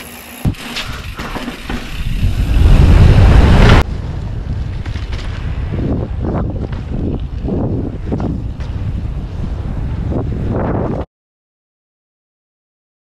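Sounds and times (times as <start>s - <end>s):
bike tyres rolling on asphalt: 0.0s - 11.0s
wind rushing over microphone: 1.8s - 11.1s.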